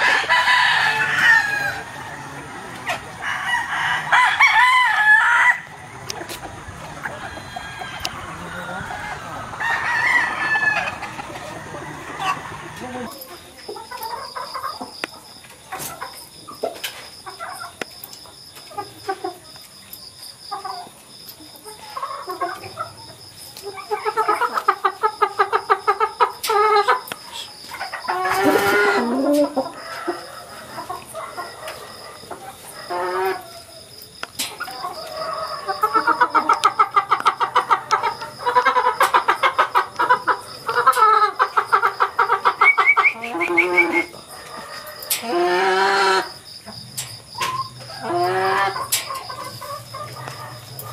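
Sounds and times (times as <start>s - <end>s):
loud chicken call: 0.0s - 6.1s, 6.8s - 13.1s, 28.0s - 31.8s, 34.7s - 46.4s, 47.4s - 50.5s
chickens clucking: 0.0s - 50.9s.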